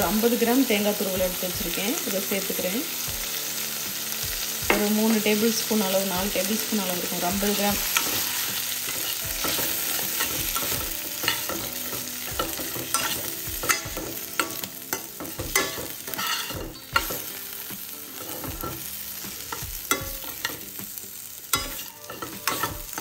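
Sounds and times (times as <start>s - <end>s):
food sizzling in pan: 0.0s - 23.0s
spatula scraping pan: 7.1s - 17.4s, 21.5s - 23.0s
spatula knocking pan: 7.4s - 17.4s, 19.5s - 20.7s, 21.5s - 23.0s.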